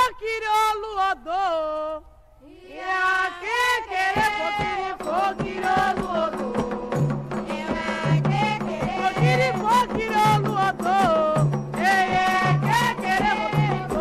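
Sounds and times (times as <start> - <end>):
drums and percussion: 3.4 - 14.0.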